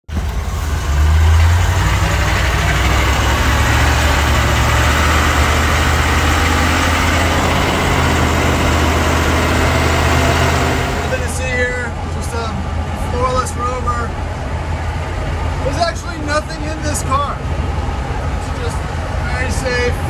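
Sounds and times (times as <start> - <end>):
car engine running: 0.1 - 11.8
road and wind noise: 0.1 - 20.0.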